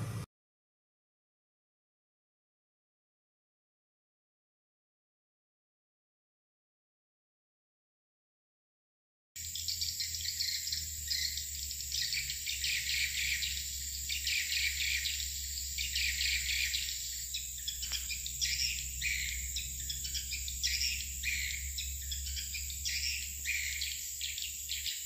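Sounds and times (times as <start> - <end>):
swiftlets twittering: 9.4 - 25.0.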